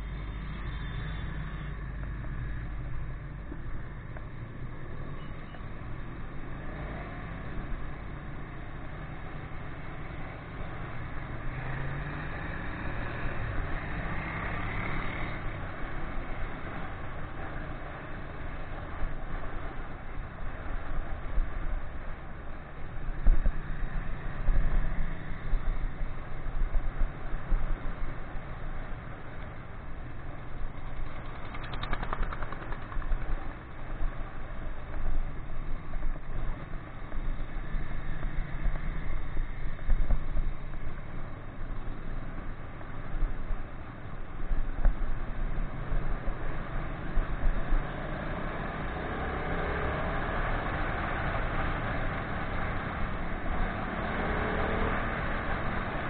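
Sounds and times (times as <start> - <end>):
wind rush on camera: 12.5 - 56.0
motorcycle engine running: 30.6 - 37.3.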